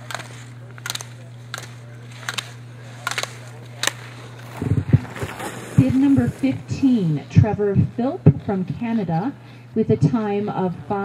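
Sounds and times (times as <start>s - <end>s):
low electrical hum: 0.0s - 11.0s
ski edges scraping snow: 2.9s - 7.1s.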